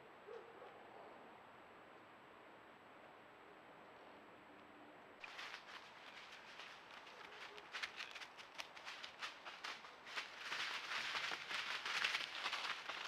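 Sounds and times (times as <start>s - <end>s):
animal steps in dry leaves: 5.2s - 13.0s.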